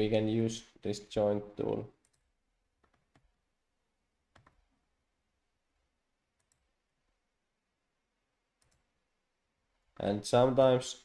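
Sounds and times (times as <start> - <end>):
computer mouse clicks: 2.0 - 3.4, 4.3 - 4.7, 6.4 - 6.8, 8.6 - 8.9.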